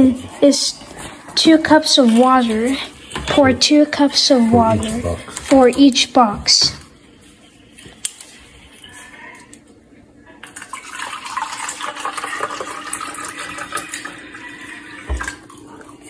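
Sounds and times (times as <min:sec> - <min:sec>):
water pouring into plastic cup: 0:10.4 - 0:16.0.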